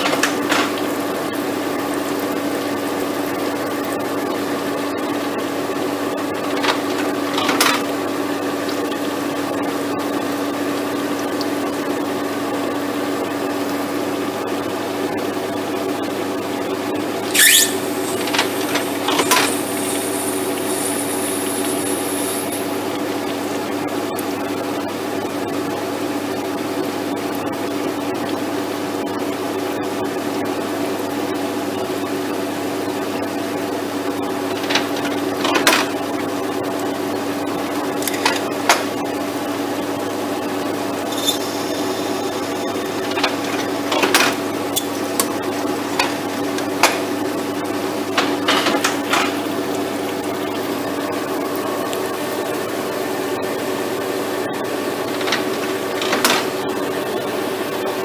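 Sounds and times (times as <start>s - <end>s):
screw machine humming: 17.2s - 22.9s, 40.7s - 47.1s, 53.5s - 57.6s
brief high ring: 41.1s - 42.3s.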